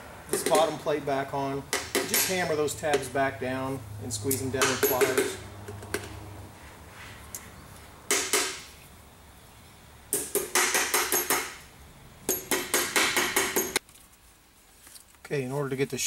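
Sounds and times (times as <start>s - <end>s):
hammer tapping metal: 1.7s - 3.1s, 4.3s - 6.2s, 10.1s - 11.6s, 12.3s - 13.8s.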